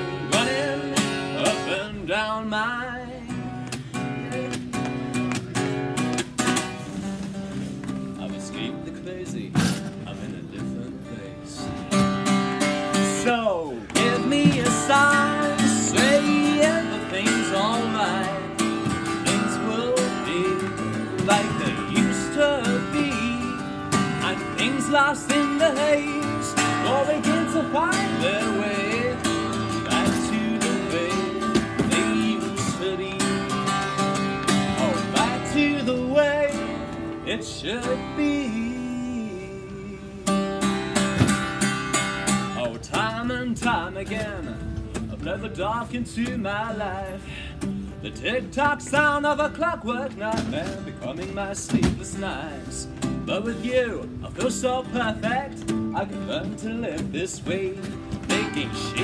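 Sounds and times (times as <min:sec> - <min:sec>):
man singing: 0:00.0 - 0:06.0, 0:08.0 - 0:59.0
acoustic guitar strumming: 0:00.0 - 0:59.0.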